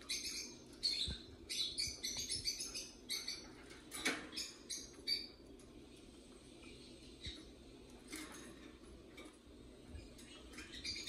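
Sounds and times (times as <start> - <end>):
parrots chirping: 0.0 - 5.6, 9.9 - 11.0.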